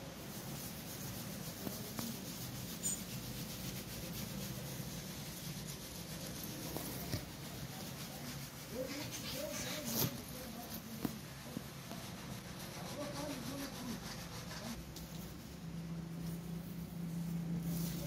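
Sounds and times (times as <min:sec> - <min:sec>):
rubbing and handling noise: 0:00.0 - 0:18.0
steady low hum: 0:00.1 - 0:18.0.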